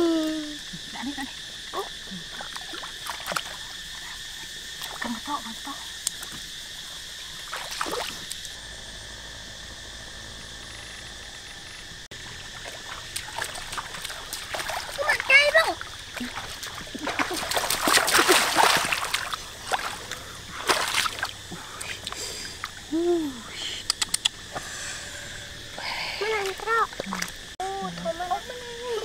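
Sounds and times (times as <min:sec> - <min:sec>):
frogs calling: 0:00.0 - 0:29.0
insects: 0:00.0 - 0:29.0
splashing in shallow water: 0:01.8 - 0:06.4, 0:07.2 - 0:08.6, 0:12.2 - 0:22.9, 0:26.2 - 0:27.6.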